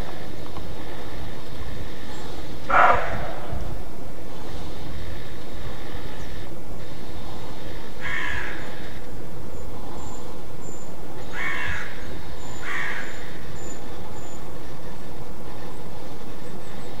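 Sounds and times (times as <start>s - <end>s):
steady low rumble: 0.0s - 17.0s
deer hoarse alarm bark: 2.7s - 4.0s.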